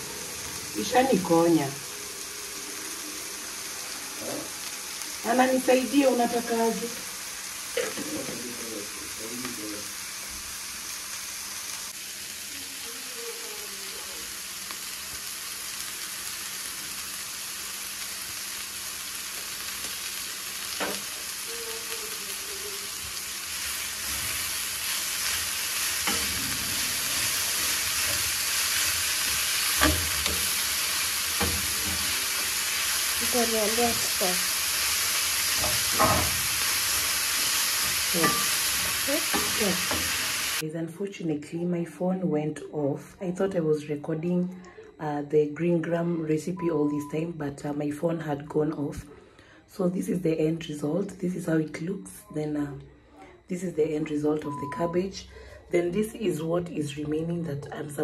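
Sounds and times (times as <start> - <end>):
vegetables sizzling in a frying pan: 0.0 - 40.6.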